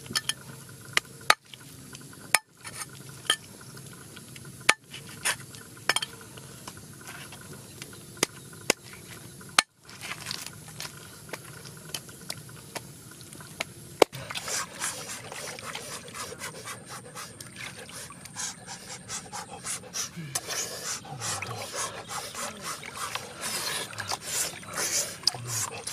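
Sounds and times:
chicken washed in water bowl: 0:14.1 - 0:25.9.

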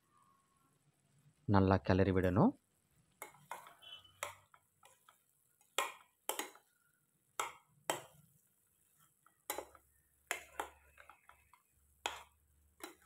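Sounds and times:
spatula scraping metal pan: 0:03.2 - 0:06.6, 0:07.4 - 0:13.0.

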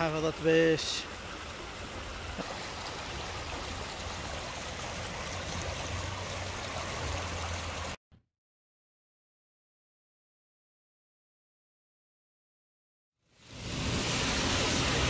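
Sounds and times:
water rushing over stones: 0:00.0 - 0:08.0, 0:13.4 - 0:15.0.

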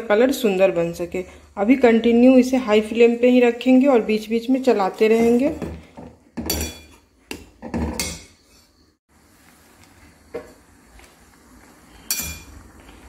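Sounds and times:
metal spatula scraping a pan: 0:05.0 - 0:05.7, 0:08.0 - 0:08.9.

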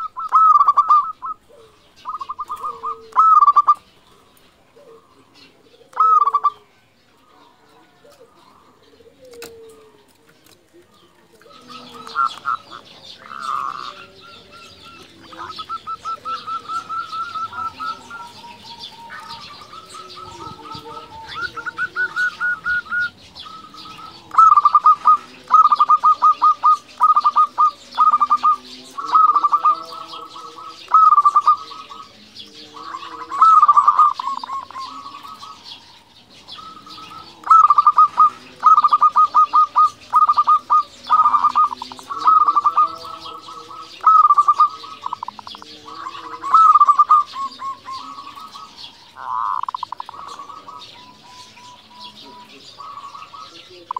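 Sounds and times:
dove cooing: 0:00.0 - 0:53.9.

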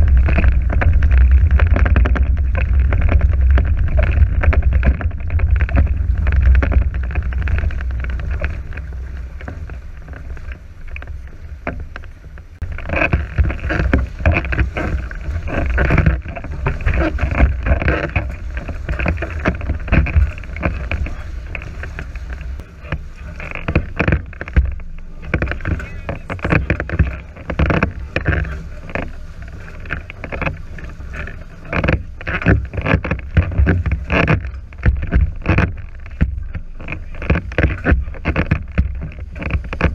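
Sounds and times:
water slapping against hulls: 0:00.0 - 0:39.9
wind rumbling on microphone: 0:00.0 - 0:39.9.

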